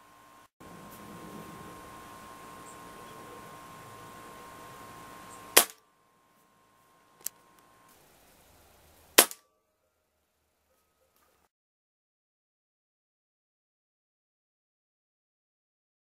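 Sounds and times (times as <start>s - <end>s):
air rifle shots: 5.6s - 5.8s, 9.2s - 9.4s.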